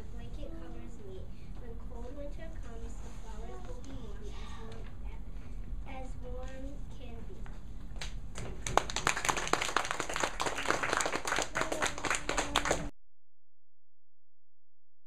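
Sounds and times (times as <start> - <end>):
group applauding: 8.4 - 12.9.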